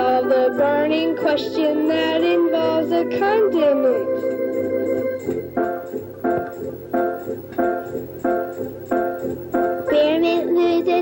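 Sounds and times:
children's song: 0.0s - 5.4s, 9.6s - 11.0s
keyboard playing repeated chords: 0.0s - 11.0s.

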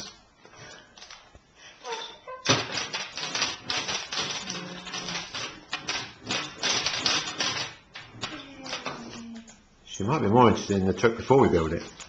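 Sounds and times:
plastic bag crinkling and rattling: 1.9s - 9.2s.

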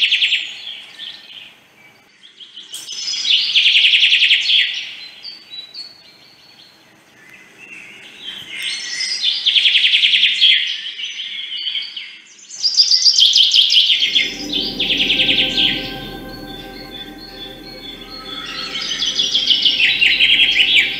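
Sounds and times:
low hum: 14.0s - 20.9s.

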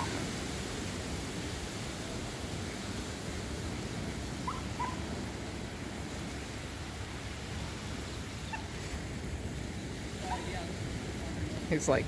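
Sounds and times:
surf: 0.0s - 12.0s
wind: 0.0s - 12.0s.

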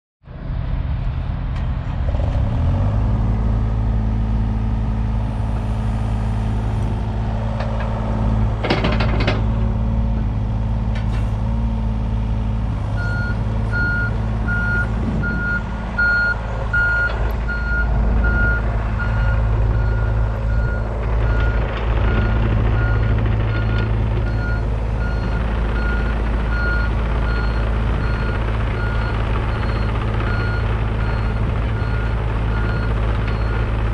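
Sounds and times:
diesel engine running: 0.3s - 33.9s
clatter: 8.6s - 9.7s
excavator alarm beeps: 13.0s - 33.6s.

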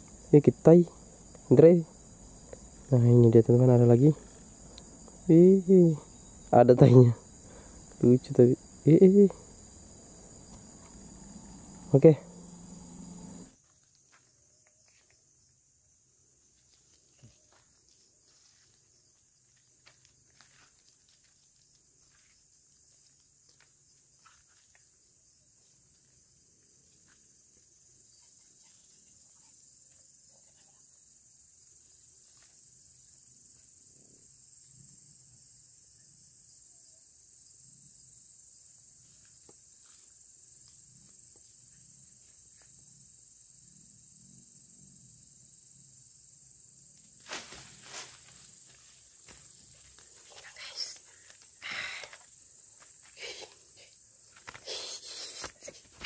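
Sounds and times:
night insects chirring: 0.0s - 56.0s.

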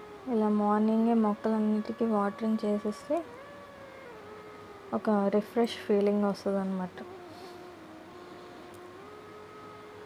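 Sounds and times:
light hiss: 0.0s - 10.0s
soft background music: 0.0s - 10.0s.

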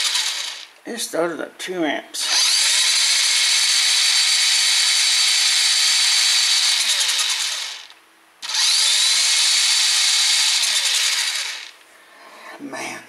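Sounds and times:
electric motor whining: 0.0s - 0.7s, 2.2s - 11.8s.

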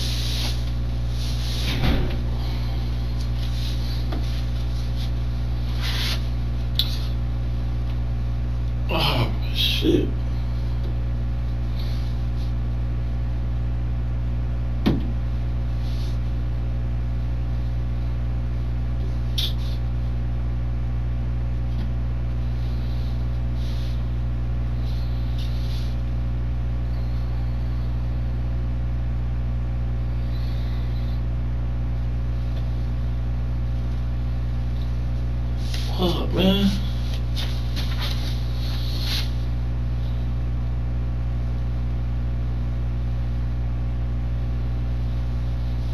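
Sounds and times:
steady low room hum: 0.0s - 45.9s
soft rustles: 3.1s - 7.2s, 36.7s - 39.4s.

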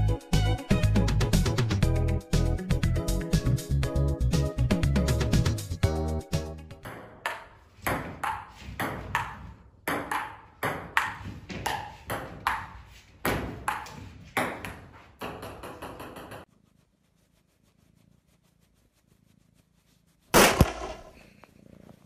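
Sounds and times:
table tennis ball bouncing: 6.8s - 16.5s.

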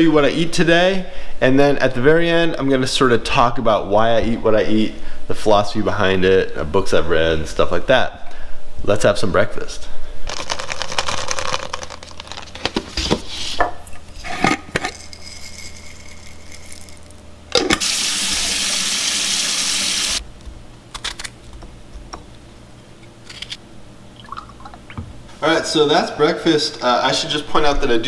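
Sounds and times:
tap water running: 17.7s - 20.2s.

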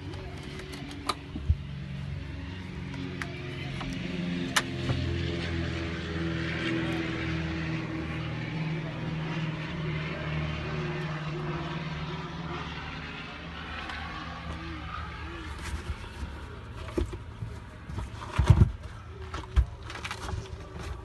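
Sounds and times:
low mechanical drone: 0.0s - 21.0s.

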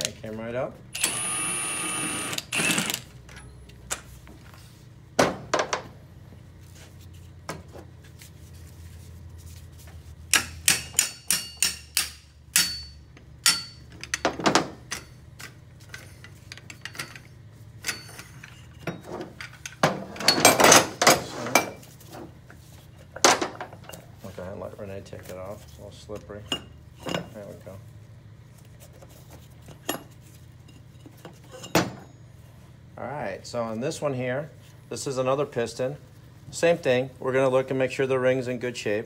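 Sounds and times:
hammer striking metal: 10.3s - 13.8s.

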